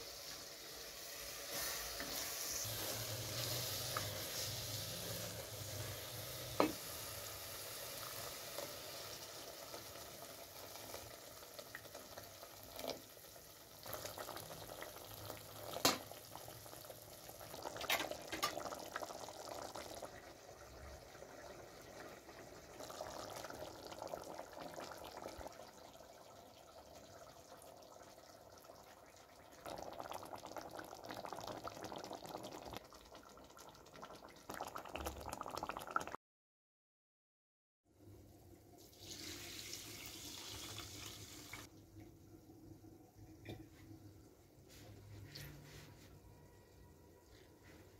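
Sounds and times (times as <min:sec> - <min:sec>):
herbs sizzling in a pot: 0:00.0 - 0:20.4
stew bubbling: 0:10.6 - 0:36.2.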